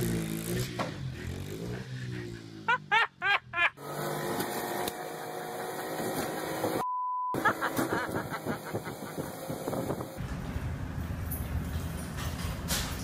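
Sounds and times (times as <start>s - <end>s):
censor beep: 6.8s - 7.4s.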